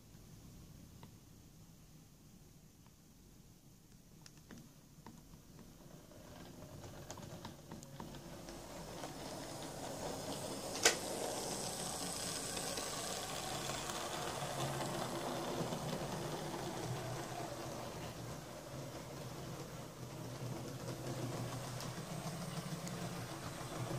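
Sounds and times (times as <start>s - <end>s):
model wheels clicking on rails: 5.6s - 23.9s
small electric motor whirring: 8.8s - 17.7s.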